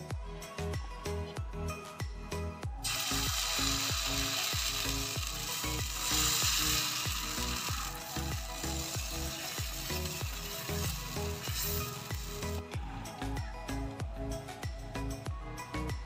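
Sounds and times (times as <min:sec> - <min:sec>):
background music: 0:00.0 - 0:16.0
batter sizzling on griddle: 0:02.8 - 0:12.6.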